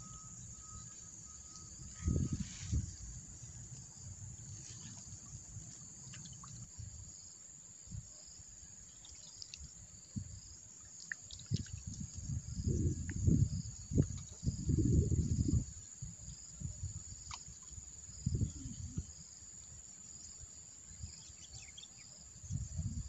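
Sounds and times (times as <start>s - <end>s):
insects chirring: 0.0s - 23.0s
water dripping and trickling: 4.4s - 6.8s, 8.9s - 15.5s.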